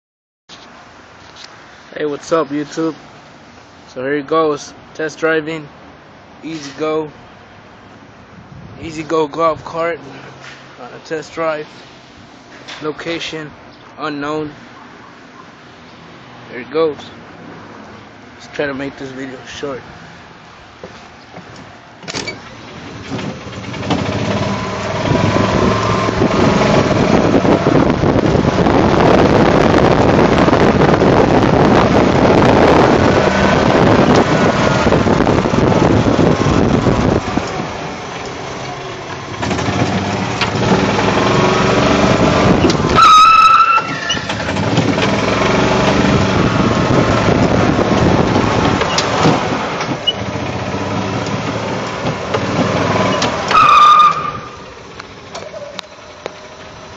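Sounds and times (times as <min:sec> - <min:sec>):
golf cart running: 0:22.0 - 0:56.9
high-pitched squeal: 0:42.5 - 0:44.6, 0:53.0 - 0:54.7.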